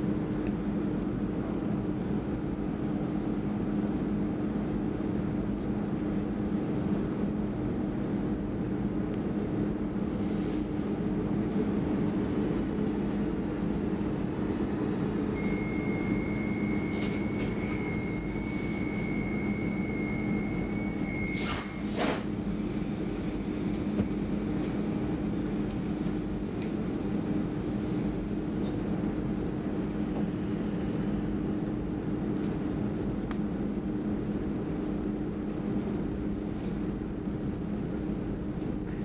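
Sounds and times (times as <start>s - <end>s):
electric train rumbling hum: 0.0s - 39.0s
high steady squeal: 15.4s - 22.0s.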